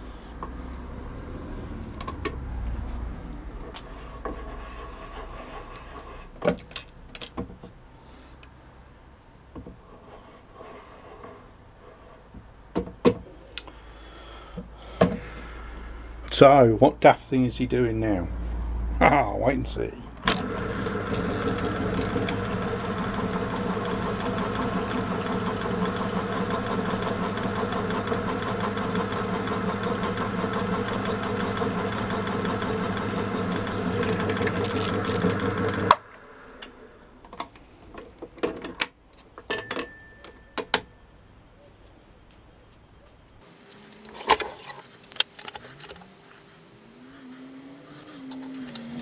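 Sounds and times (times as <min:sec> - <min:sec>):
drill press drilling metal: 0:20.2 - 0:36.0.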